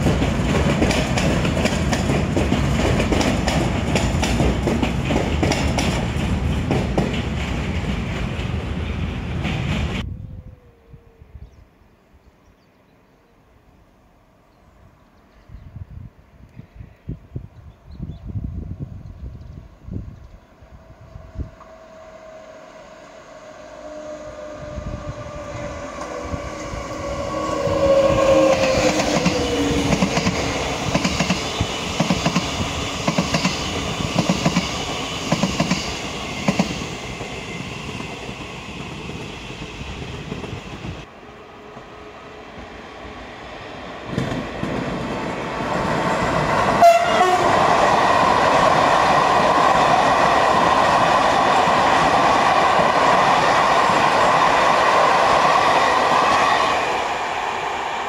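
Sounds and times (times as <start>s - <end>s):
train wheels clicking over rail joints: 0.0s - 10.0s, 26.0s - 40.6s, 44.0s - 46.6s
electric train passing: 0.0s - 10.1s, 19.6s - 58.0s
passenger train rolling past: 0.0s - 10.2s, 18.0s - 58.0s.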